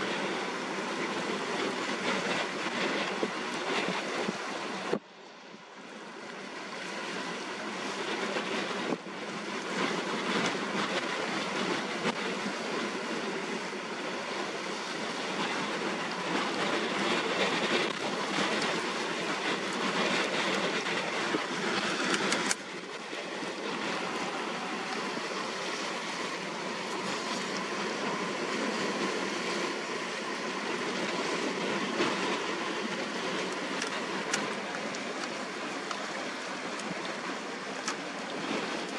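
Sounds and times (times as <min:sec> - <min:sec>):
rough water: 0:00.0 - 0:38.9
strong gusty wind: 0:00.0 - 0:38.9.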